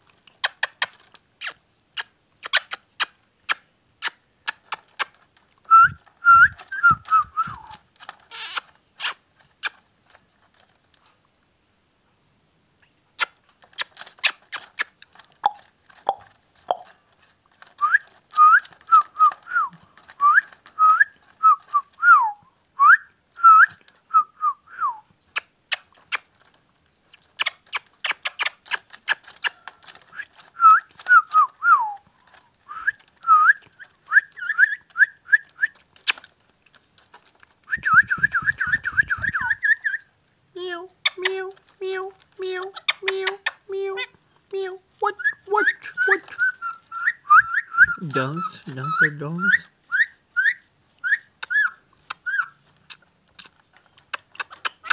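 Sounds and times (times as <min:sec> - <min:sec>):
parakeet whistled chirps: 0:46.3 - 0:48.0, 0:48.9 - 0:52.6
sharp clicks: 0:51.4 - 0:54.9.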